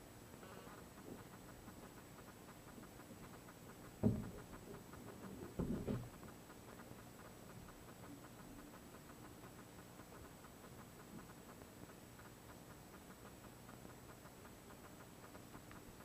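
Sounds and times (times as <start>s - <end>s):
faint hiss: 0.0s - 16.0s
muffled knocks and rubbing: 4.0s - 6.1s.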